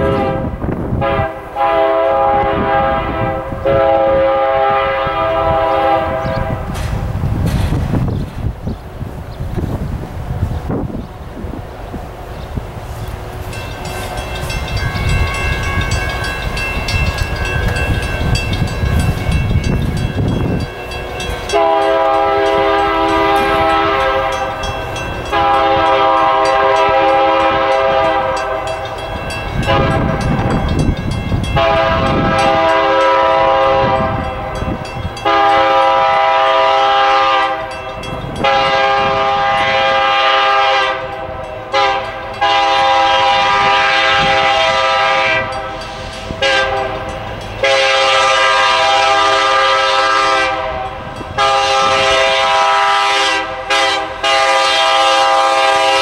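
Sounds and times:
train air horn blasts: 0.0 - 7.0, 21.2 - 29.0, 29.6 - 30.6, 31.4 - 56.0
low train rumble: 0.0 - 56.0.

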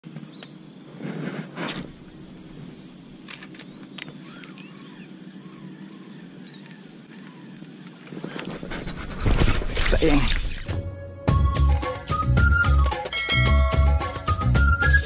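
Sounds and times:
steady low hum: 0.1 - 10.9
bird chirps: 1.4 - 9.2.

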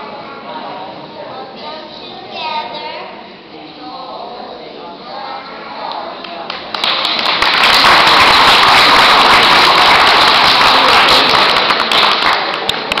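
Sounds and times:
audience applauding: 6.5 - 13.0.

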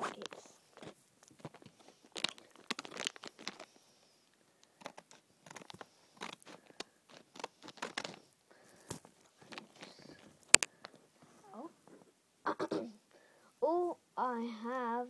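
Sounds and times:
foil packet crinkling: 0.0 - 3.8, 4.6 - 11.0.

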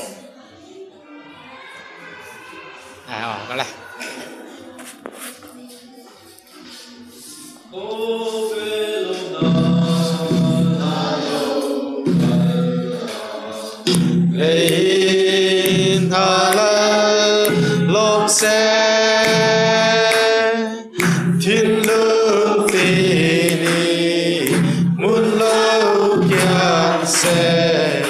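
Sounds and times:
children singing: 6.6 - 28.0.

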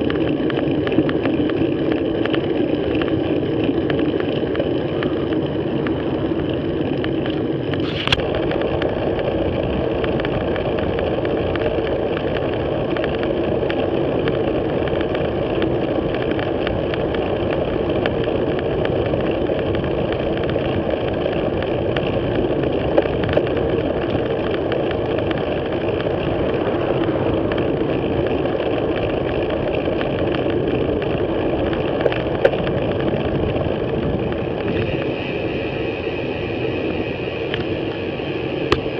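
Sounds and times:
road rumble: 0.0 - 38.9
wind rushing: 24.9 - 30.0.

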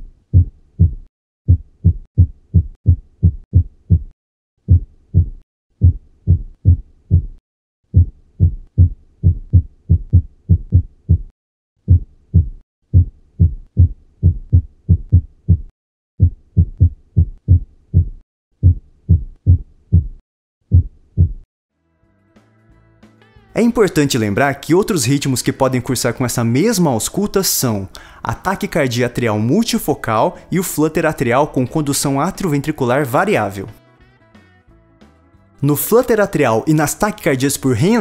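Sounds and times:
irregular heartbeat: 0.0 - 21.5.

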